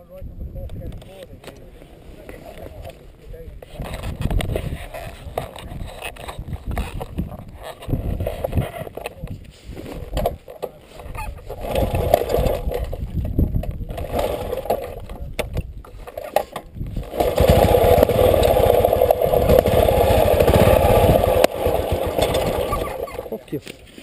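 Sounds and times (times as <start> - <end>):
motorbike engine running: 16.9 - 23.4.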